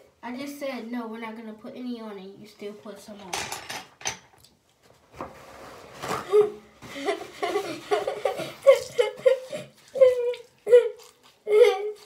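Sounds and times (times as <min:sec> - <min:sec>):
girl laughing: 0:06.3 - 0:12.0.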